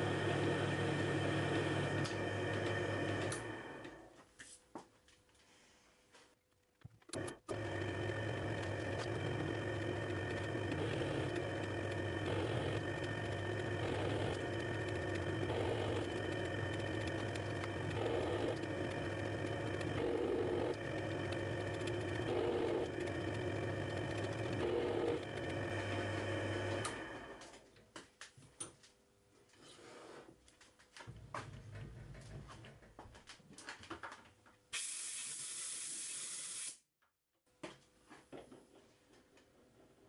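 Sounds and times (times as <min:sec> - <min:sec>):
lathe motor and gear hum: 0:00.0 - 0:04.1, 0:07.0 - 0:27.6
lathe tool cutting metal: 0:07.2 - 0:27.3.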